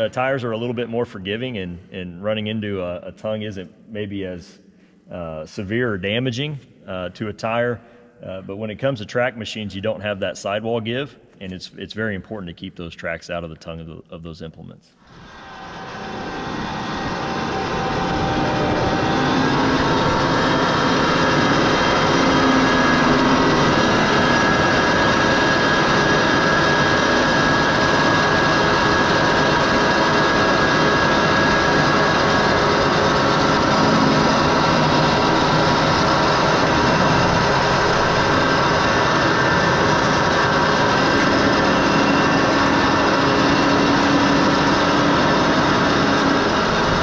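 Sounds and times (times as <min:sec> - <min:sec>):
tractor engine under load: 0:15.1 - 0:47.0.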